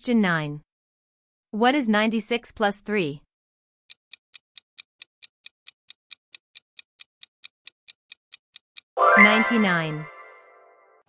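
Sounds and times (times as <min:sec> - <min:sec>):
clock ticking: 0:03.9 - 0:09.0.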